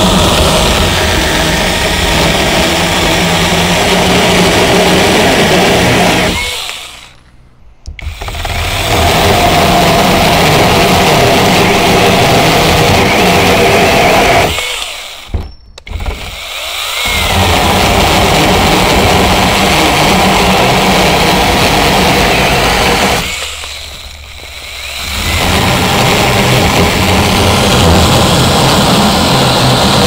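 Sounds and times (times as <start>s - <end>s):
chainsaw cutting wood: 0.0s - 7.2s, 7.9s - 30.0s
chainsaw motor click: 6.4s - 8.3s.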